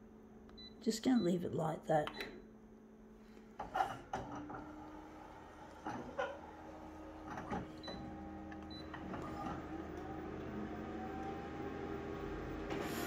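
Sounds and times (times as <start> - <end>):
copier motors whirring: 3.6 - 13.0
rising whine: 8.0 - 13.0.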